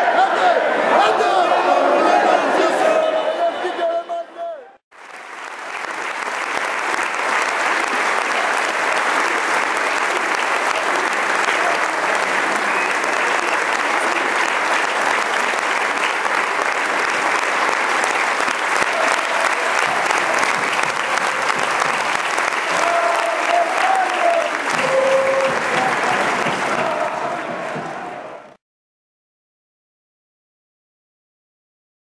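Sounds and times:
stadium crowd applauding: 4.9s - 28.6s.

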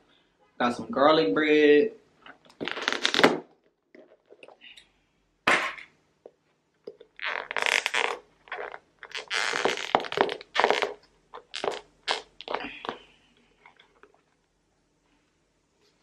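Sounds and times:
plastic lids creaking and crackling: 2.2s - 4.8s, 5.7s - 14.3s.

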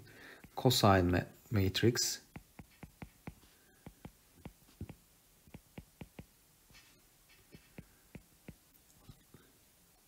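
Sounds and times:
stylus tapping on glass screen: 2.3s - 6.3s.

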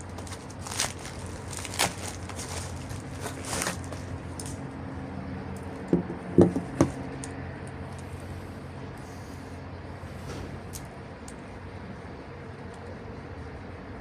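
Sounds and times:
bubble wrap crinkling: 0.0s - 4.7s
dull knocks of cables: 5.8s - 7.1s.

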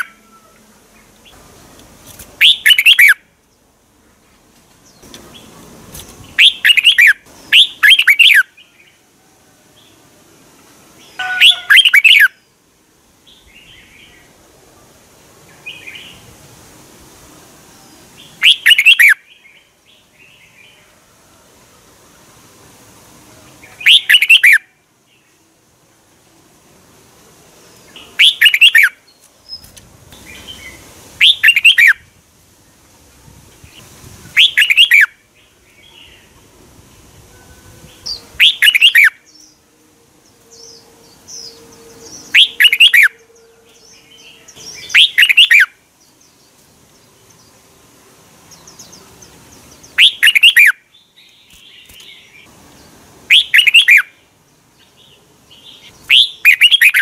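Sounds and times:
bird singing short phrases: 2.4s - 3.2s, 6.4s - 8.9s, 11.0s - 12.4s, 23.6s - 24.6s, 27.9s - 32.0s, 37.4s - 39.6s, 40.5s - 45.7s, 49.7s - 52.5s, 53.3s - 54.2s, 54.8s - 57.0s.

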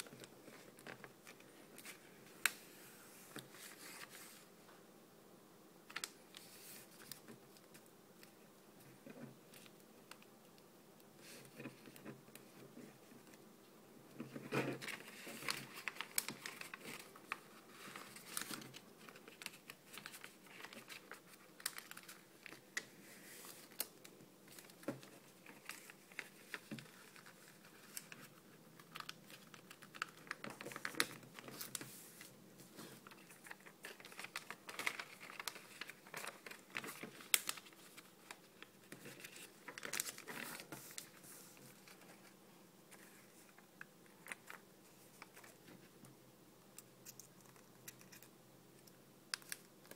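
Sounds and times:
paper rustling and crinkling: 0.0s - 4.5s, 14.2s - 46.0s.

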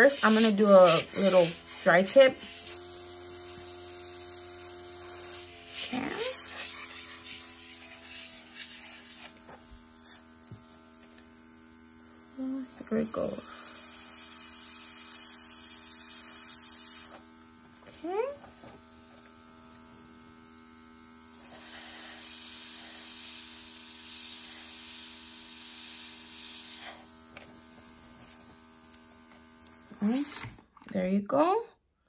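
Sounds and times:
airbrush air hissing: 0.0s - 10.3s, 13.1s - 17.3s, 21.3s - 30.5s
air compressor humming: 0.0s - 30.6s.

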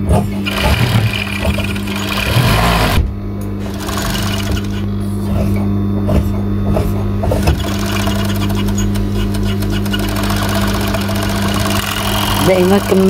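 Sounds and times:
sewing machine stitching: 0.1s - 3.0s, 3.6s - 4.9s, 7.4s - 13.0s.

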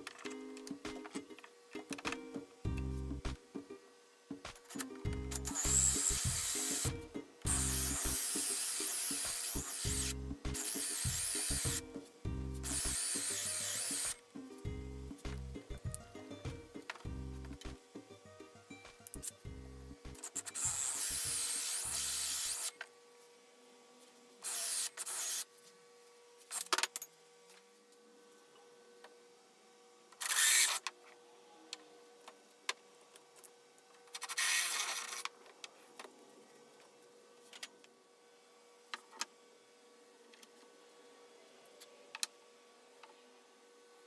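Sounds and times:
cordless drill cutting wood: 5.5s - 11.8s, 12.6s - 14.2s, 20.4s - 22.8s, 24.4s - 25.5s, 30.2s - 30.8s, 34.3s - 35.2s.

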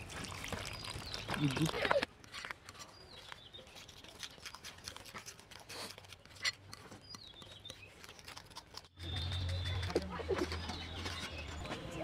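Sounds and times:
spoon stirring batter: 4.9s - 12.0s.

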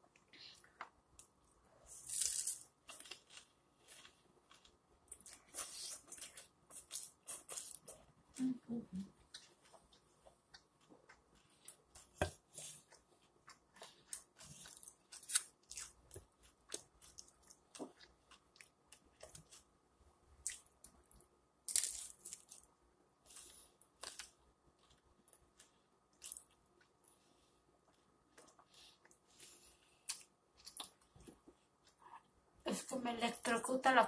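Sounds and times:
biting and chewing crunchy food: 1.9s - 8.2s, 9.2s - 19.7s, 20.4s - 27.0s.

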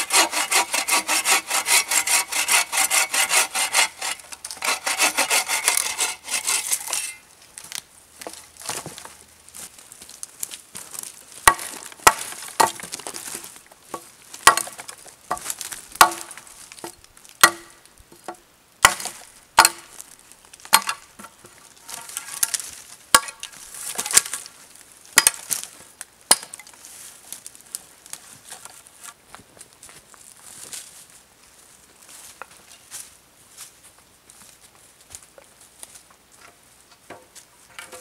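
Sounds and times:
hatchet chopping branch: 11.5s - 13.0s, 14.4s - 16.4s, 17.4s - 17.8s, 18.8s - 19.9s, 20.7s - 21.1s, 23.2s - 24.4s, 25.2s - 25.7s, 26.3s - 26.7s.

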